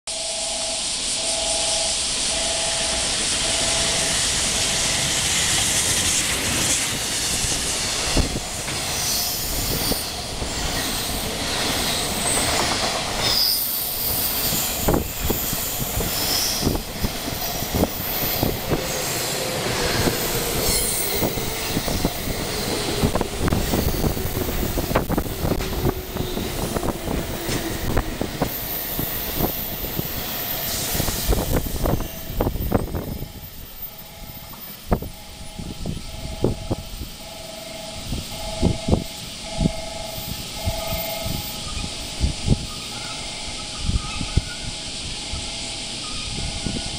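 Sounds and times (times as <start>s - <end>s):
electric train tone falling in pitch: 0.1s - 5.6s, 12.1s - 46.9s
train rushing past: 0.1s - 46.9s
high wheel squeals: 8.2s - 33.3s.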